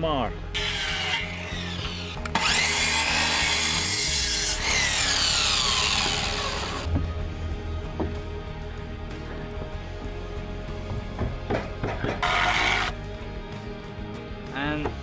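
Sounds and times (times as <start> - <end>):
miter saw cutting wood: 0.6 - 6.9, 12.2 - 13.0
saw motor whining down: 0.6 - 6.9.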